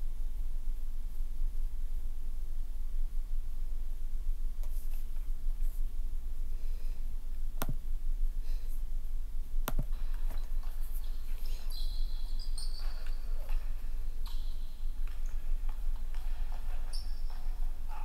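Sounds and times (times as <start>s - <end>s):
low electrical hum: 0.0s - 18.0s
faint high-pitched chirps: 10.4s - 15.4s.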